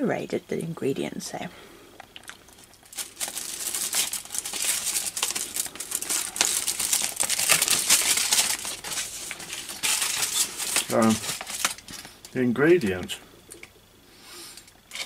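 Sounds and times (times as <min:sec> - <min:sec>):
packaging crinkling: 0:02.0 - 0:12.4.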